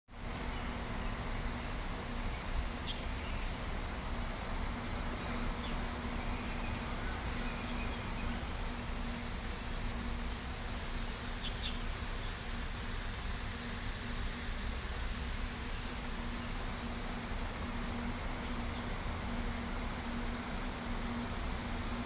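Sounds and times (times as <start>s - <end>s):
thin high-pitched whine: 2.1s - 3.9s, 5.1s - 10.3s.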